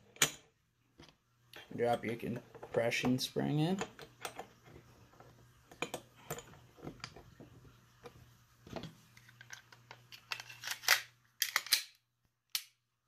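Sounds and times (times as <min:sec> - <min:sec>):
pistol parts clicking: 0:09.4 - 0:12.8.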